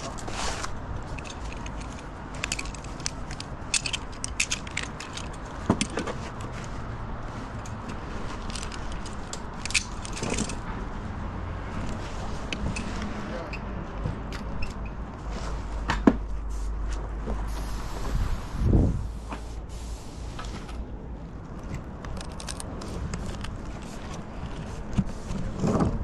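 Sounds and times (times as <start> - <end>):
climbing hardware clinking: 1.1 - 6.2, 8.3 - 10.6
wind rumble on microphone: 17.4 - 19.2.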